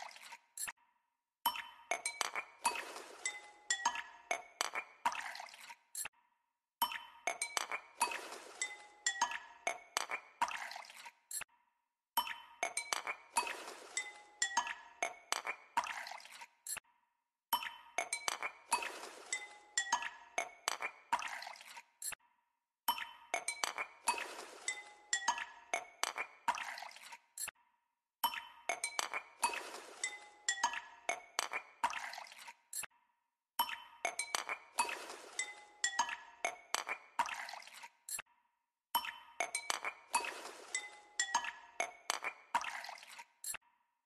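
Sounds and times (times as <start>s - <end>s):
liquid swishing: 24.0s - 25.0s, 29.4s - 30.4s, 34.8s - 35.8s, 40.1s - 41.2s.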